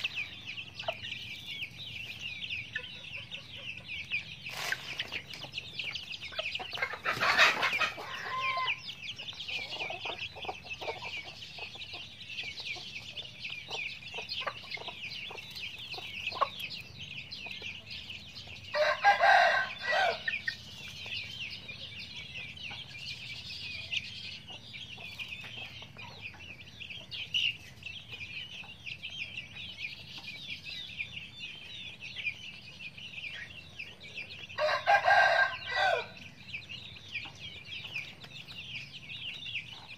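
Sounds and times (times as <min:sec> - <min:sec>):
chicks peeping: 0:00.0 - 0:39.9
hens clucking: 0:00.0 - 0:39.9
rooster crowing: 0:07.2 - 0:08.8, 0:18.7 - 0:20.3, 0:34.6 - 0:36.2.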